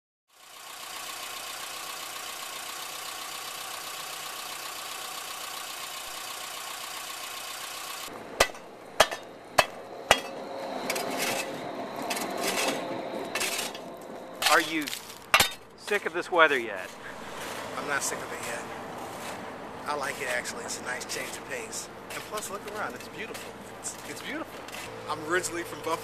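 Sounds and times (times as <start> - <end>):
shovel scraping pavement: 8.1 - 26.0
shovel striking ice: 8.4 - 12.8, 13.4 - 13.8, 14.4 - 16.0.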